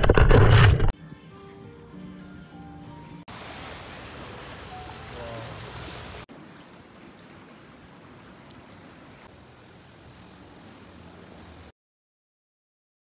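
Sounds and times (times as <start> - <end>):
wind and water hiss from boat: 3.2 - 11.7.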